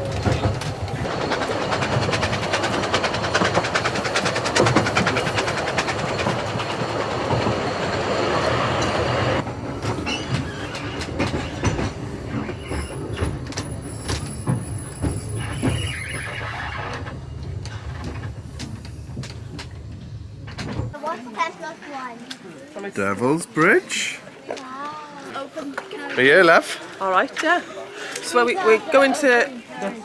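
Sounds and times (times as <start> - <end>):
train wheels clattering on track: 0.0 - 21.0
train wheel squeal: 1.4 - 17.9.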